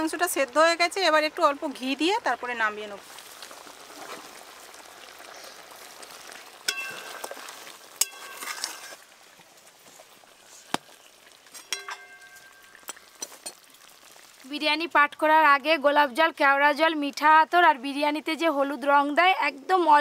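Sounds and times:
meat sizzling in a wok: 0:00.0 - 0:14.7
ghee pouring: 0:01.4 - 0:14.5
metal spatula clinking on pan: 0:06.7 - 0:07.2, 0:08.0 - 0:08.6, 0:11.6 - 0:13.6.

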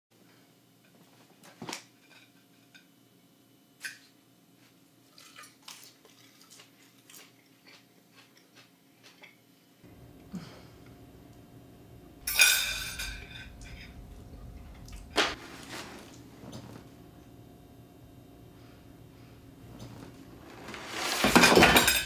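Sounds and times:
man chewing crunchy salad: 0:05.6 - 0:09.5
cutlery clinking on plate: 0:12.3 - 0:14.0.

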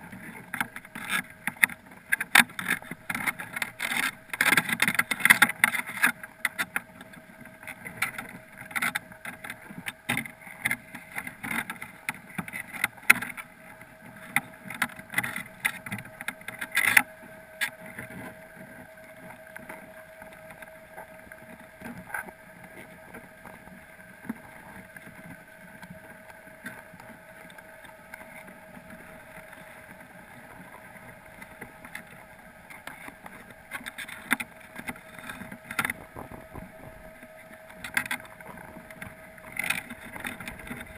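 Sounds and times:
steady underwater hum: 0:00.0 - 0:40.9.

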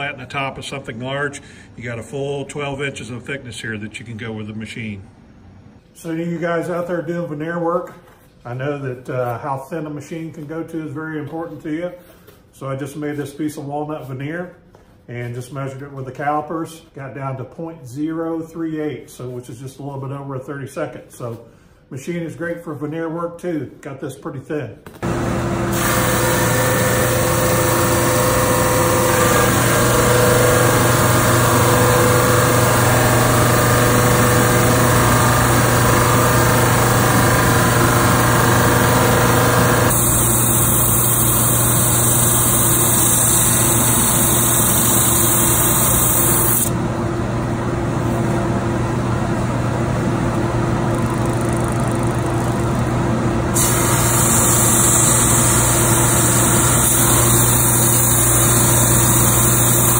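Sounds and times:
drum sander motor hum: 0:25.0 - 0:59.9.

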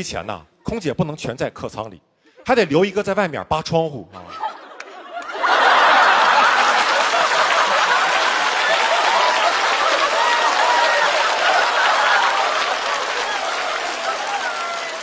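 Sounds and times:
audience laughing: 0:04.1 - 0:15.0
audience applauding: 0:04.8 - 0:15.0.

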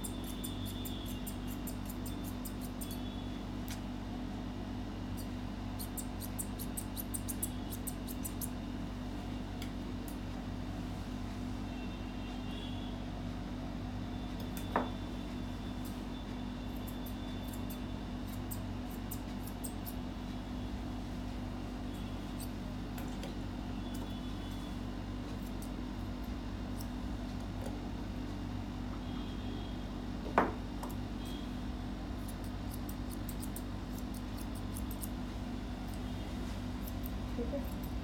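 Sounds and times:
shears snipping fur: 0:00.0 - 0:03.8, 0:05.2 - 0:08.6, 0:16.8 - 0:20.0, 0:32.2 - 0:35.2, 0:35.8 - 0:38.0
steady low hum: 0:00.0 - 0:38.0.

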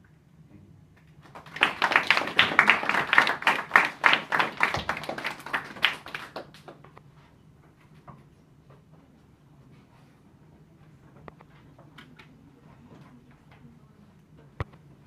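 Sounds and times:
audience clapping: 0:01.2 - 0:07.0.

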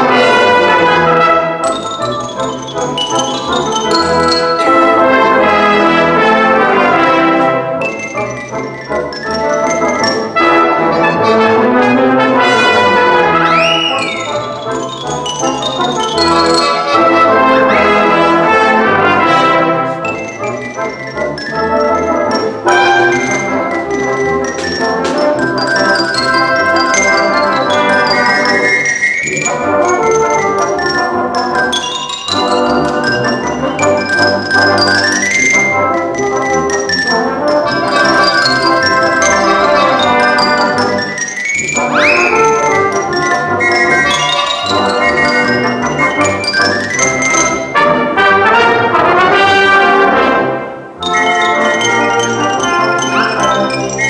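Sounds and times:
fast xylophone solo: 0:00.0 - 0:49.8, 0:51.0 - 0:54.0
brass band accompaniment: 0:00.0 - 0:54.0
sharp rising pitch glides: 0:40.2 - 0:47.6.

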